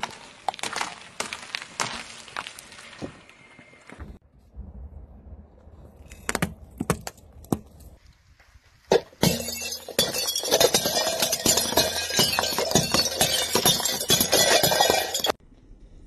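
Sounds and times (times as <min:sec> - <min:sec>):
tyre crushing ceramic plates: 0:08.9 - 0:15.4.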